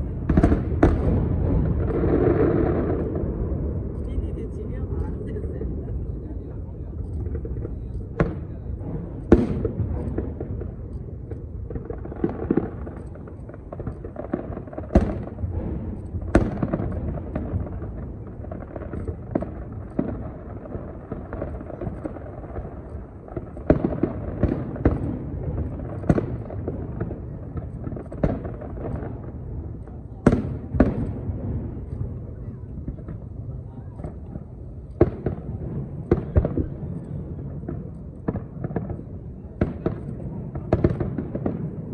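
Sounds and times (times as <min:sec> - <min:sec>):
fireworks bursting: 0:00.0 - 0:41.9
low crackle and rumble: 0:00.0 - 0:41.9.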